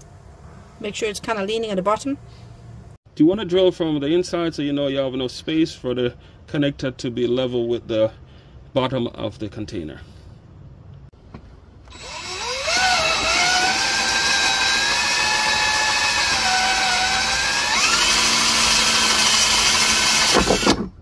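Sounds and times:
power drill motor whine: 11.9 - 20.8.

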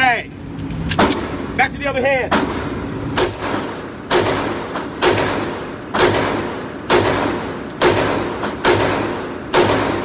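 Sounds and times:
pistol shots echoing indoors: 2.4 - 10.0.

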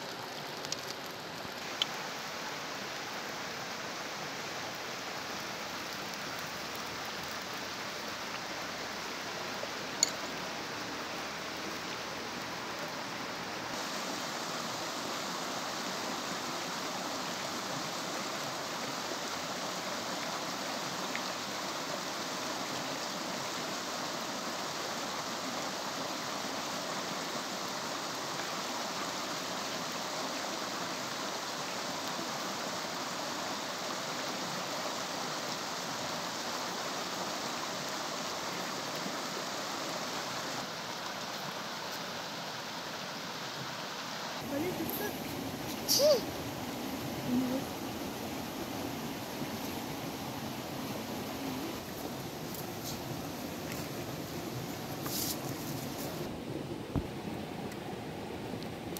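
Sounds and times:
flowing water rushing: 0.0 - 58.9.

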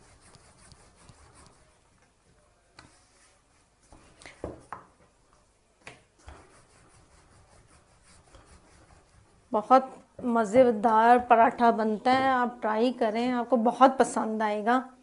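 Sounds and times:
rolling pin rubbing dough: 0.0 - 1.8, 6.2 - 9.8.

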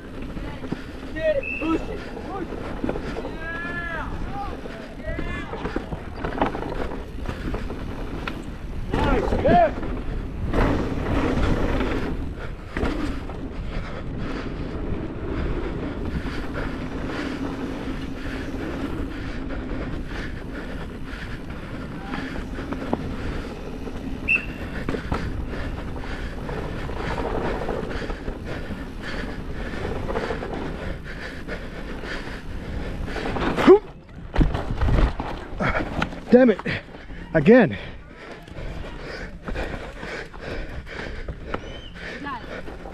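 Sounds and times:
bike jolt: 0.2 - 37.3
bike clattering over rocks: 5.2 - 12.1, 33.3 - 36.9.

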